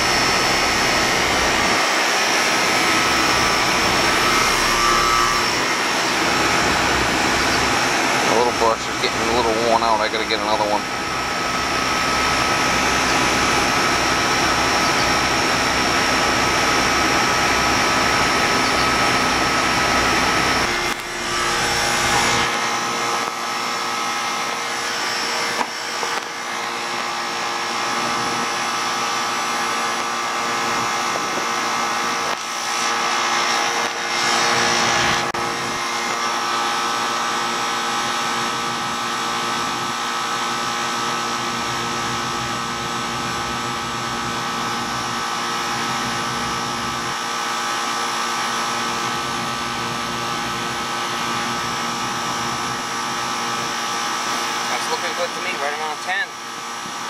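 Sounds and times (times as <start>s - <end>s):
compressor hum: 0.0s - 57.0s
condenser fan whoosh: 0.0s - 57.0s
rush of noise: 19.4s - 37.1s.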